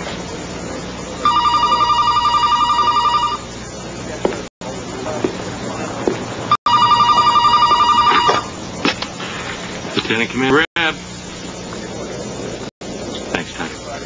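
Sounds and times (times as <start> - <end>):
desk telephone ringing: 1.2 - 3.5, 6.7 - 8.6.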